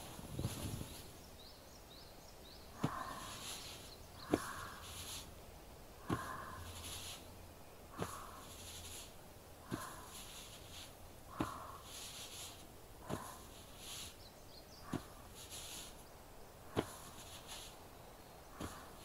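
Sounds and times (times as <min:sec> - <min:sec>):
rustling rub: 0:00.0 - 0:01.1, 0:02.8 - 0:05.4, 0:06.0 - 0:14.2, 0:14.8 - 0:16.0, 0:16.7 - 0:17.9, 0:18.5 - 0:19.0
massage kneading knocks: 0:02.7 - 0:05.1, 0:06.0 - 0:07.0, 0:07.9 - 0:08.9, 0:09.6 - 0:13.7, 0:14.8 - 0:15.8, 0:16.7 - 0:17.7, 0:18.5 - 0:19.0.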